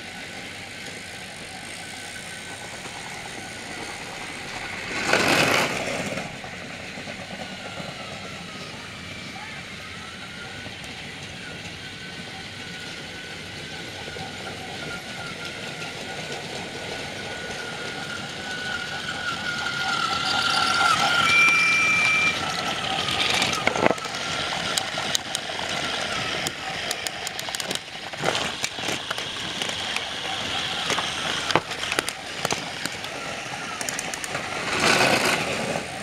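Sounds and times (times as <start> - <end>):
toy train motors whining: 0.0 - 36.0
toy wheels clacking on track: 0.4 - 6.4, 13.8 - 36.0
brief high tone: 20.6 - 22.6.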